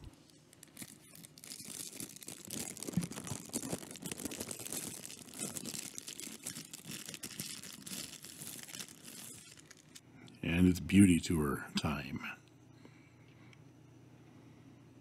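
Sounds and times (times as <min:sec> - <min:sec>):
plastic sleeve crinkling: 0:00.0 - 0:10.0.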